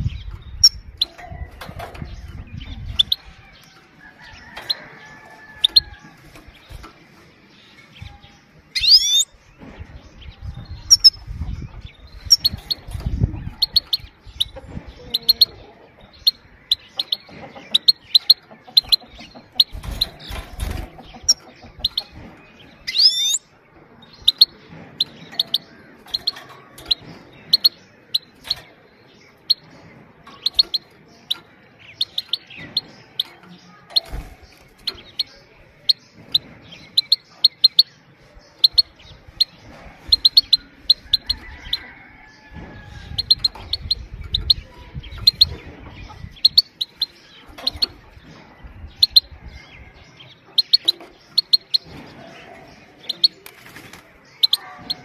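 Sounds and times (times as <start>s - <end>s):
finch sharp high calls: 8.8s - 9.3s.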